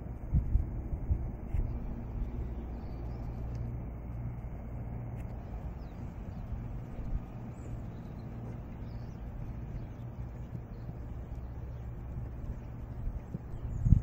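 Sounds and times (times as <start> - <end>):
low outdoor rumble: 0.0 - 14.0.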